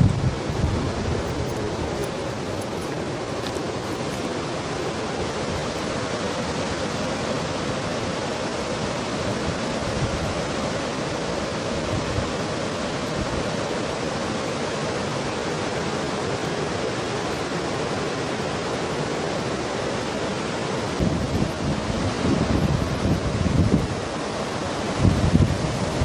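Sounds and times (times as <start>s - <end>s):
wind buffeting microphone: 0.0s - 5.7s, 21.0s - 24.2s, 24.8s - 26.0s
fast-flowing stream water: 0.0s - 26.0s.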